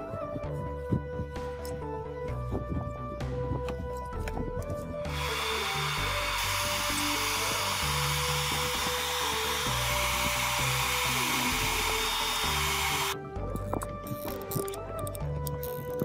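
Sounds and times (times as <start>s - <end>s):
hair dryer blowing air: 5.1s - 13.2s.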